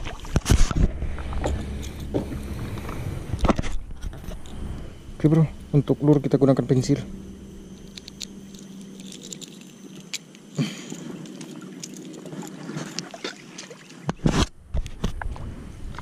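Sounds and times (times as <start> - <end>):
fishing line clicks and ticks: 7.8 - 14.2.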